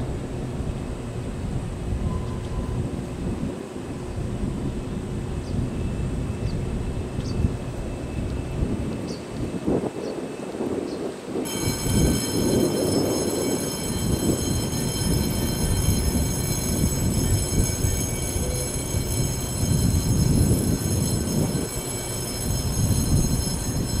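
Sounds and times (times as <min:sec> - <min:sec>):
electric train pulling away: 0:00.0 - 0:24.0
thin high whine: 0:11.4 - 0:24.0.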